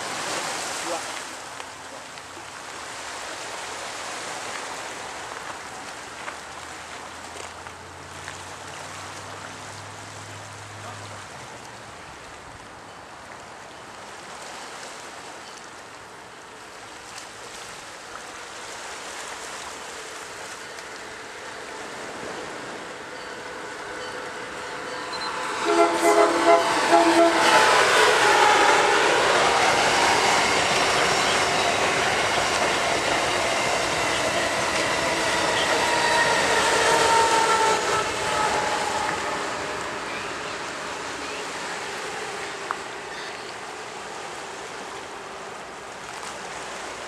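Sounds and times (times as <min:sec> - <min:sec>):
surf on rocky shore: 0:00.0 - 0:47.0
wind: 0:00.0 - 0:47.0
approaching train: 0:17.6 - 0:47.0.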